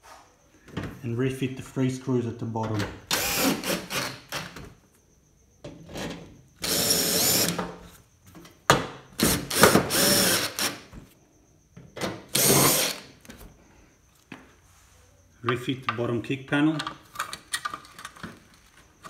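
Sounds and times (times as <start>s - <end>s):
cordless drill driving screws: 3.1s - 4.5s, 6.6s - 7.6s, 9.2s - 10.8s, 12.3s - 13.1s.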